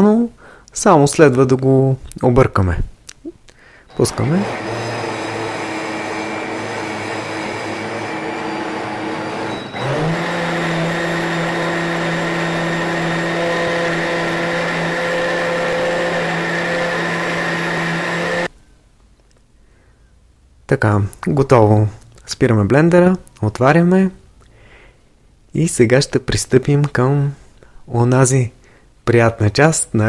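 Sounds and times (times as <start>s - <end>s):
blender motor running: 3.9s - 18.5s.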